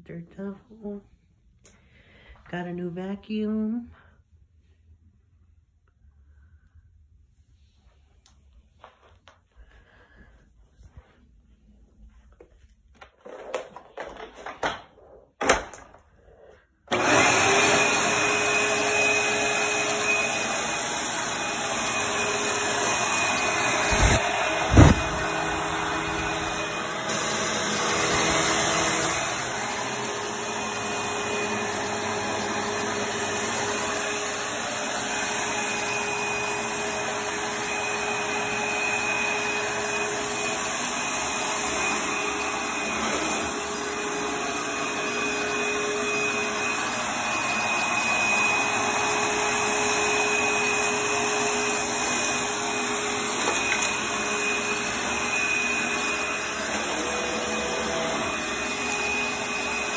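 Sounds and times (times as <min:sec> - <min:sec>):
vacuum cleaner on carpet: 0:16.3 - 0:59.9
high whine: 0:23.8 - 0:26.6.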